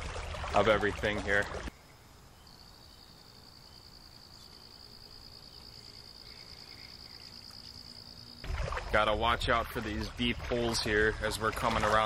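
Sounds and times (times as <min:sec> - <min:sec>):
soft outdoor background noise: 0:00.0 - 0:12.0
high-pitched insect trill: 0:01.8 - 0:08.4.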